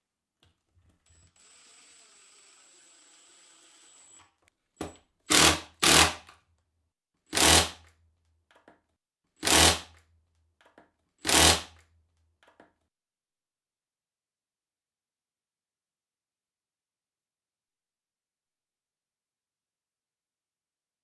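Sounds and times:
cordless drill boring into wood: 1.1 - 4.2, 5.3 - 6.2, 7.3 - 7.8, 9.4 - 9.9, 11.2 - 11.8.

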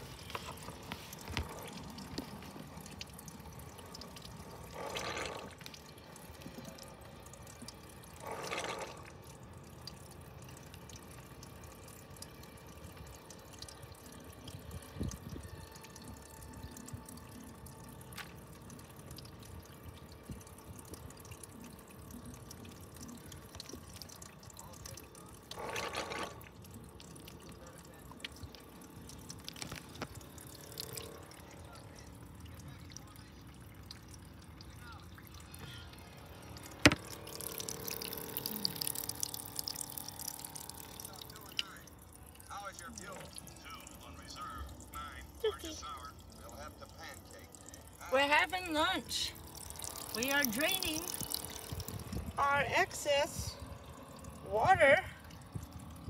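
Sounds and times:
water running and dripping: 0.0 - 56.0
small electric pump: 3.8 - 5.7, 7.7 - 9.4, 25.5 - 26.6.

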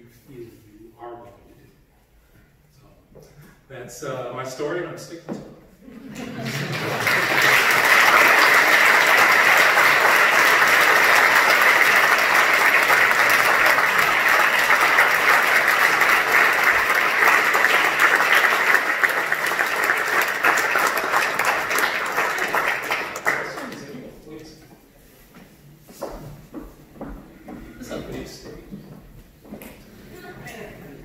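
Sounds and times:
audience applauding: 6.1 - 24.2.

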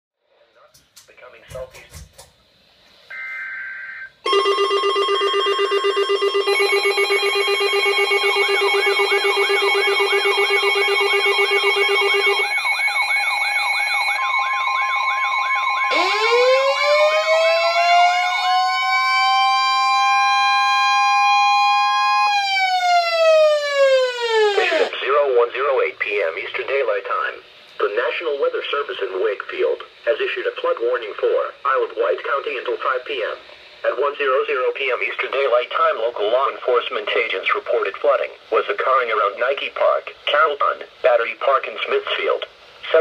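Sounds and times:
siren-style alarm: 3.1 - 25.0
steady alert tone: 3.7 - 16.6.

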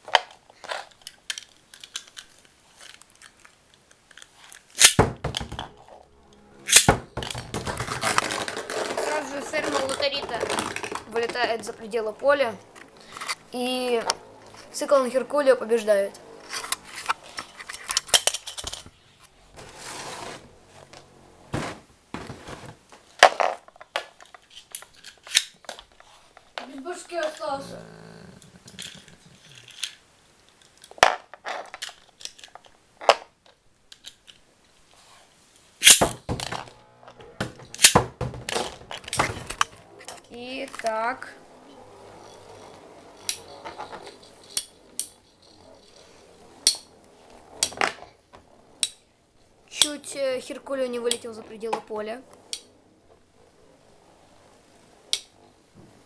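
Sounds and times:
plastic parts clicking and knocking: 0.0 - 5.8, 6.7 - 11.7, 16.4 - 19.0, 23.2 - 27.4, 28.4 - 34.4, 35.8 - 41.0
spinning tops clashing: 6.6 - 10.2, 35.8 - 36.1.

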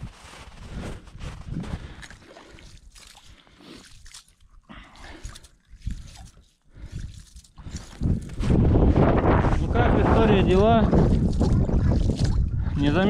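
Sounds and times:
water sloshing and trickling: 1.0 - 8.5, 10.8 - 13.0.

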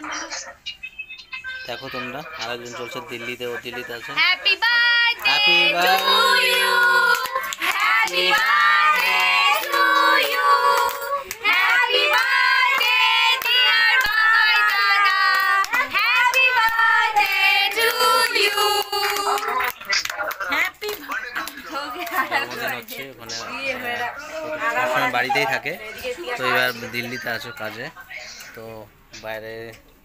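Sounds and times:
women singing together: 4.2 - 19.6
hands clapping: 5.2 - 9.9, 10.7 - 22.2.

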